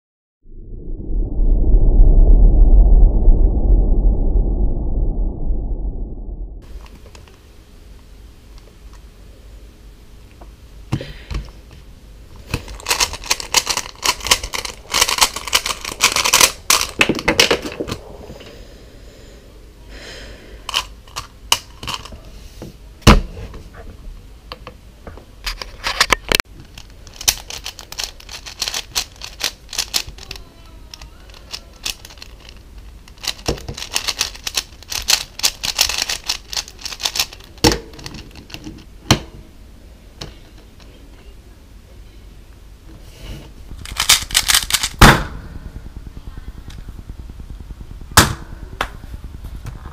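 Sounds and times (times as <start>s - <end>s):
cube popping crack: 12.4s - 18.0s, 26.7s - 38.7s, 43.8s - 45.3s
plastic cube turning clicks: 26.3s - 38.9s, 43.8s - 45.0s.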